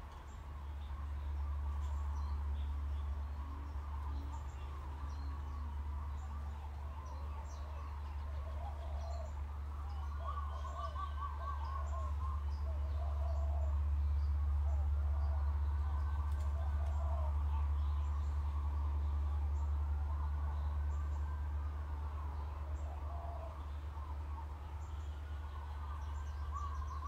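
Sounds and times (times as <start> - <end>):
bird warbling song: 0.0 - 27.0
birds chirping: 0.0 - 27.0
steady low hum: 0.0 - 27.0.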